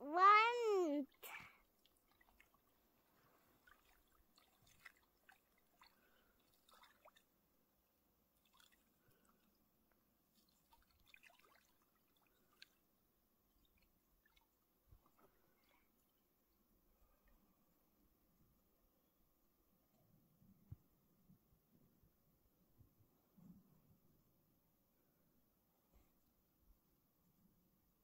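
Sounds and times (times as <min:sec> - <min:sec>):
water dripping and trickling: 0:03.6 - 0:07.2, 0:10.4 - 0:12.8.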